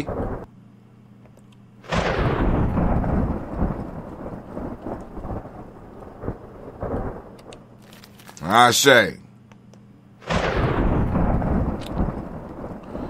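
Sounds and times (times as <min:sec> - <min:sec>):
thunder crack and rumble: 0:00.0 - 0:00.5, 0:01.8 - 0:07.8, 0:10.2 - 0:13.0.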